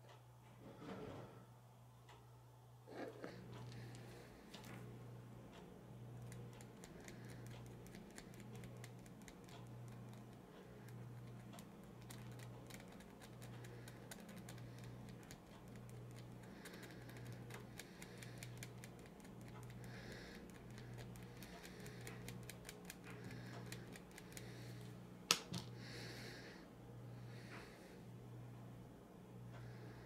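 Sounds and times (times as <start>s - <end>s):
metal pick clicking and scratching: 6.2s - 24.4s.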